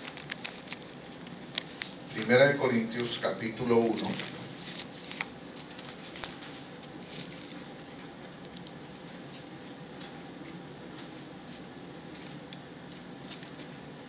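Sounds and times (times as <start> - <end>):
thin pages rustling: 0.0 - 2.4, 3.6 - 11.2, 12.1 - 13.8.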